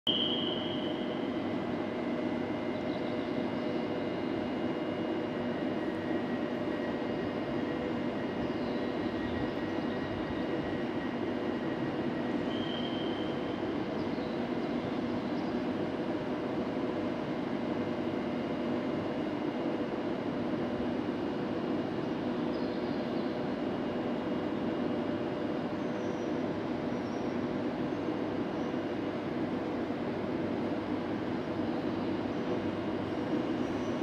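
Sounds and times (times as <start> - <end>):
faint high whines: 0.1 - 16.3
electric train hum and drone: 0.1 - 34.0.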